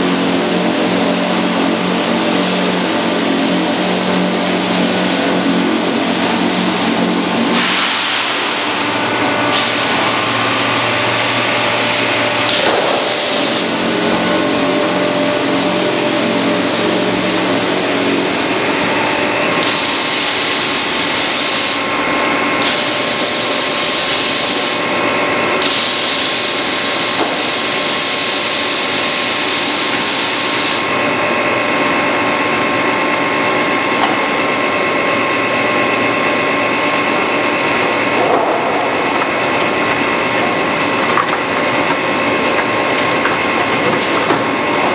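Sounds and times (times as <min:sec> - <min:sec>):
machinery roar and hum: 0:00.0 - 0:44.9.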